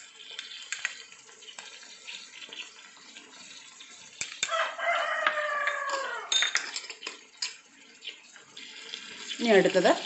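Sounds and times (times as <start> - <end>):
rooster crowing: 4.4 - 6.4.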